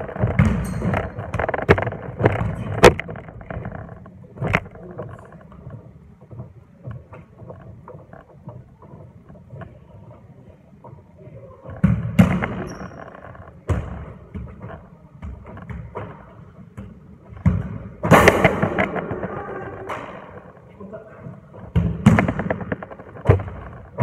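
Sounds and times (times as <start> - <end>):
loud foot thuds: 0.0 - 3.0.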